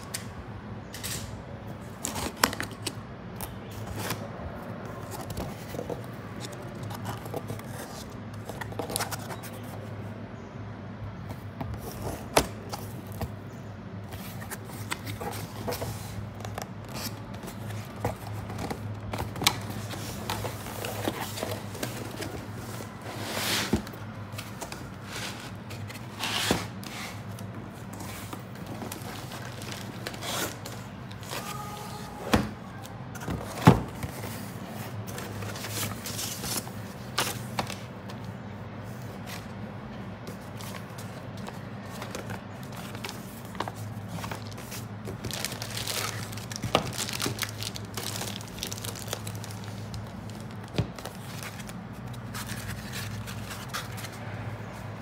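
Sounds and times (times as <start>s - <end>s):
cardboard sliding and scraping: 19.2s - 30.7s.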